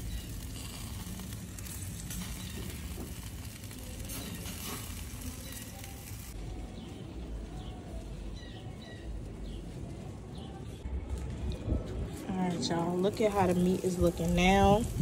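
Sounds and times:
meat sizzling on grill: 0.0s - 7.0s, 13.1s - 15.0s.

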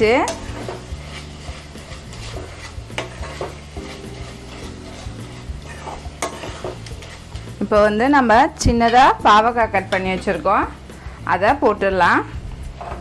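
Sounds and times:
metal spoon scraping a pan: 0.0s - 13.0s.

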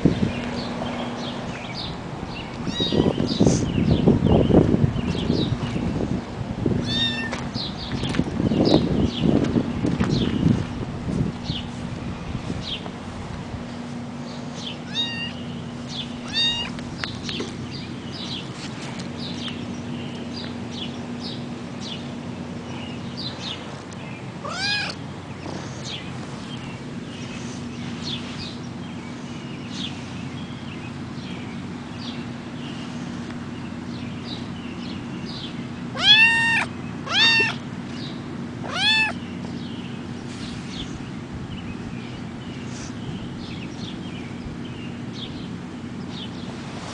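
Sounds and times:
kitten meowing: 2.6s - 3.2s, 6.8s - 7.4s, 14.8s - 15.4s, 16.2s - 16.8s, 24.4s - 25.0s, 36.0s - 37.6s, 38.6s - 39.2s.

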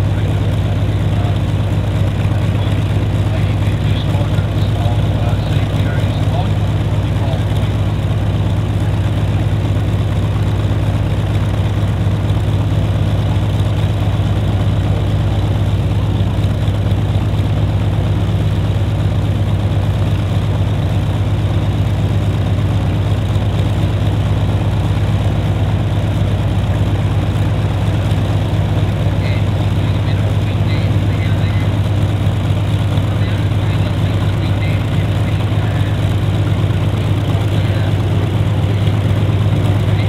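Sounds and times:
aircraft radial engine idling: 0.0s - 40.0s.

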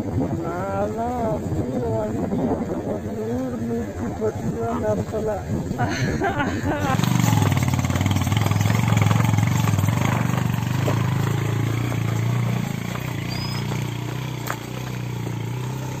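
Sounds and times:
motorcycle engine at low speed: 6.6s - 16.0s.

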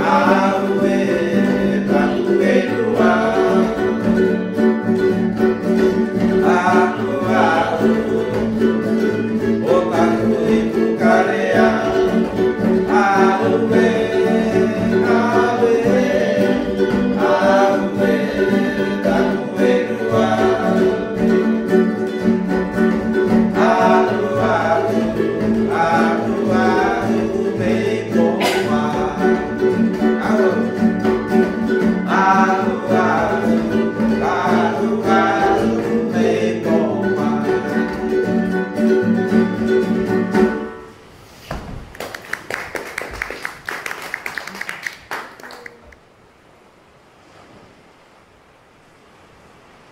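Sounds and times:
man singing: 0.0s - 4.4s, 5.8s - 22.0s, 22.8s - 38.4s
strummed acoustic guitar and ukulele: 0.0s - 41.1s.

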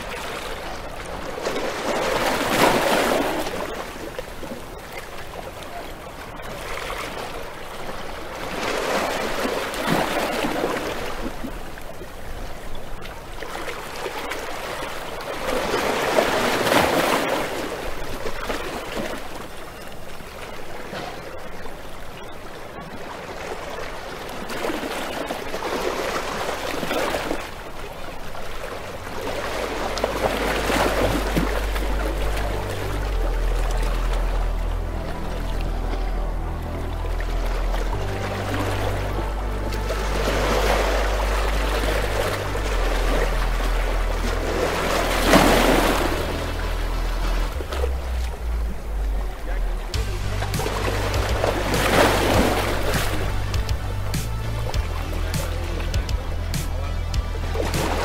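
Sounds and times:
rushing water: 0.0s - 58.0s
low steady tone: 27.5s - 58.0s.

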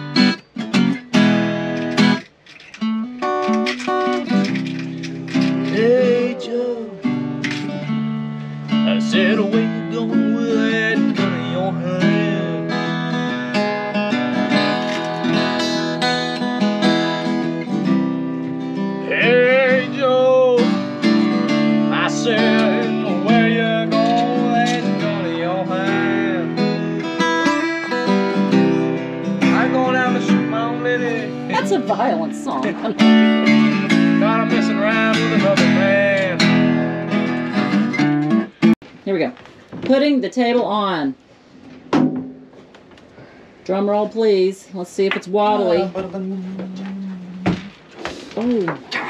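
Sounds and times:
acoustic guitar strumming: 0.0s - 38.8s, 41.8s - 42.7s, 45.1s - 48.0s
man singing: 5.6s - 7.2s, 8.7s - 13.5s, 19.0s - 20.9s, 21.8s - 27.2s, 29.4s - 31.8s, 34.0s - 36.7s, 45.5s - 47.7s.

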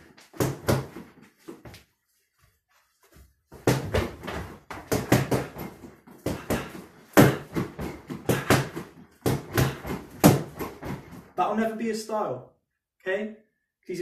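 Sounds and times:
gloves punching heavy bag: 0.0s - 1.2s, 3.5s - 11.3s.

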